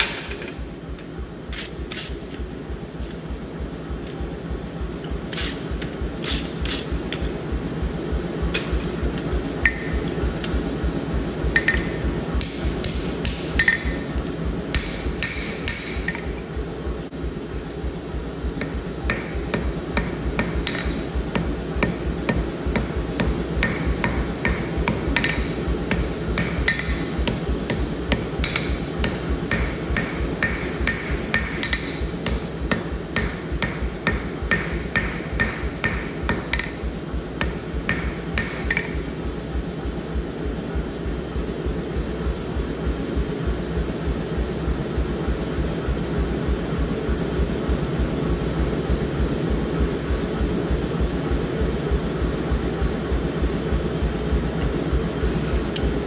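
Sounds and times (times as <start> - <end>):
hammer striking steel on anvil: 9.6 - 10.1, 11.5 - 14.1, 14.7 - 16.4, 18.6 - 39.0.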